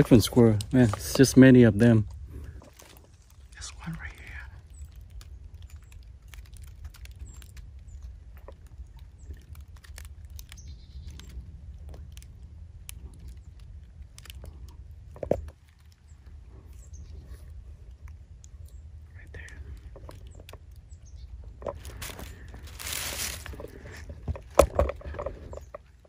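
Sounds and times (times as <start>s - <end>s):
footsteps crunching through dry leaves: 21.7s - 25.6s.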